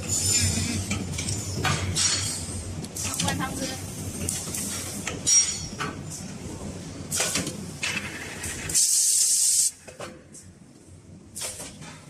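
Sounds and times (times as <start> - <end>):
compressed air hisses: 8.8 - 9.7.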